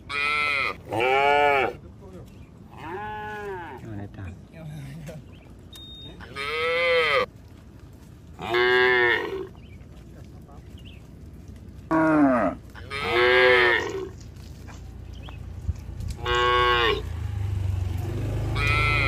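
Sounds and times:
cattle mooing: 0.1 - 1.8, 2.7 - 3.8, 6.2 - 7.3, 8.4 - 9.5, 11.9 - 14.2, 16.2 - 17.2, 18.1 - 19.0.

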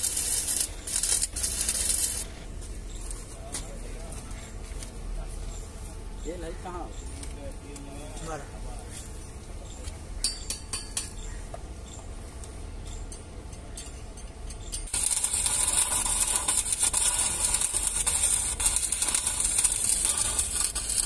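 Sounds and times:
arc welding crackling hiss: 0.0 - 4.9, 14.7 - 21.0.

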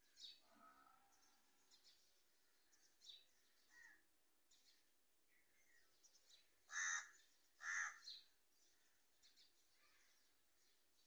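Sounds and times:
small birds chirping: 0.0 - 11.0
crow cawing: 6.7 - 8.1.

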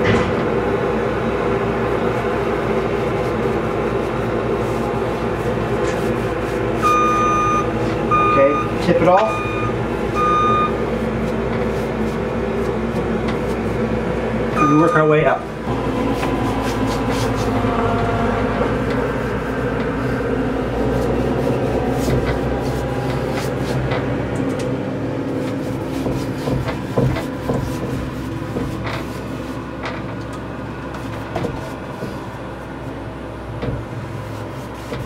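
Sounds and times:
machine hum: 0.0 - 35.0
paintbrush clicks and scrapes: 16.0 - 17.7, 20.9 - 24.0.

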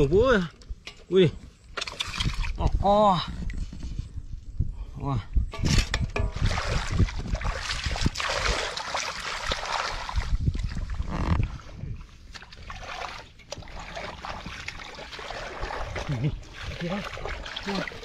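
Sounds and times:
hands splashing in muddy water: 6.3 - 11.0, 12.3 - 18.0.

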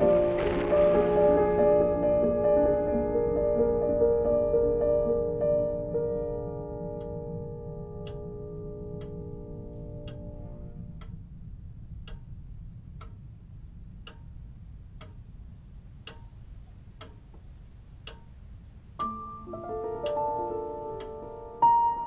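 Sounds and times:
low steady drone: 0.0 - 17.0
sustained piano-like chords: 0.0 - 17.0, 18.0 - 22.0
clock ticking: 6.8 - 19.4, 20.0 - 20.3, 21.0 - 21.2.

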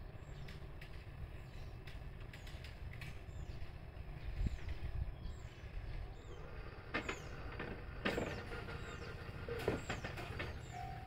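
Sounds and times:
low outdoor rumble: 0.0 - 11.0
small birds chirping: 0.0 - 11.0.

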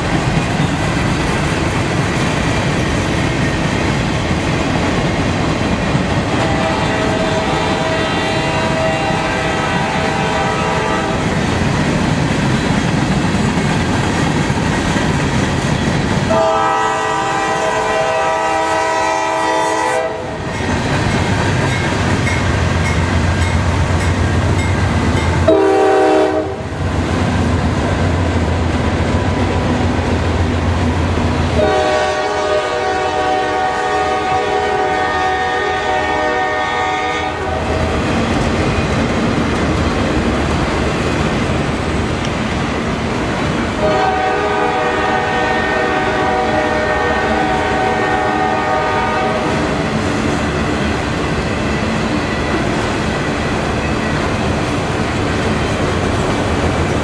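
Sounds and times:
freight train cars rolling past: 0.0 - 57.0
locomotive horn blasts: 6.3 - 11.2, 16.3 - 20.4, 25.4 - 26.7, 31.6 - 37.7, 43.8 - 49.6.

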